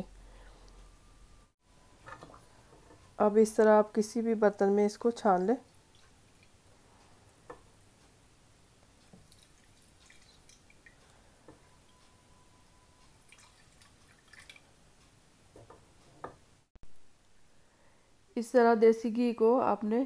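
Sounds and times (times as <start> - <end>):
faint drips: 9.1 - 11.6, 13.0 - 14.8.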